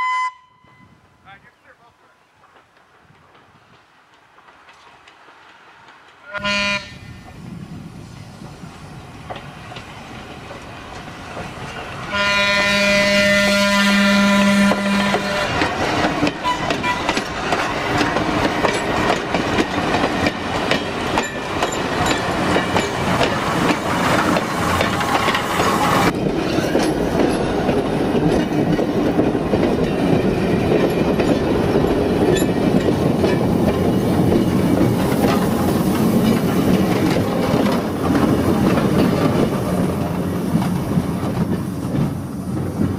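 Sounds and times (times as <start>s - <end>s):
train horn blast: 0.0s - 1.0s, 6.3s - 7.2s, 12.1s - 15.6s, 16.4s - 17.1s
train wheels clacking over rail joints: 2.4s - 6.4s, 9.1s - 13.2s, 14.0s - 42.9s.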